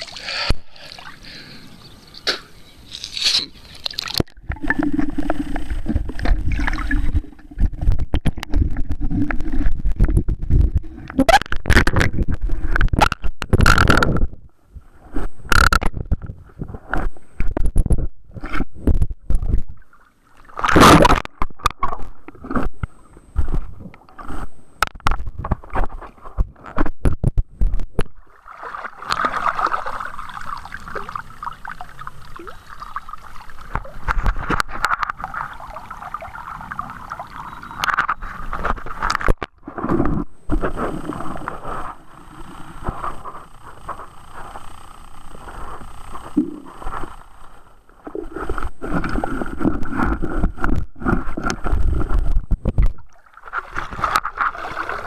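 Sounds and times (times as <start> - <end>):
water splashing: 0.0 - 1.6, 2.2 - 12.2, 28.2 - 42.8, 52.9 - 55.0
muffled underwater knocks and gurgles: 4.2 - 14.4.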